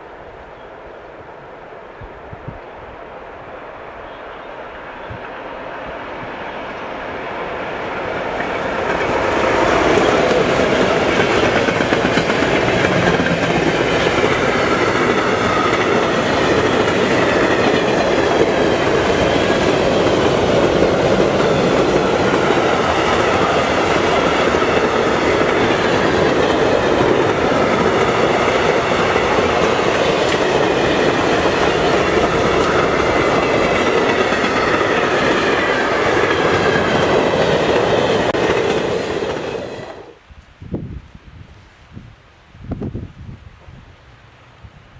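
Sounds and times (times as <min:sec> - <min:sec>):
train wheels rushing on rail: 0:00.0 - 0:40.2
wagons clickety-clack over rail joints: 0:08.2 - 0:40.0.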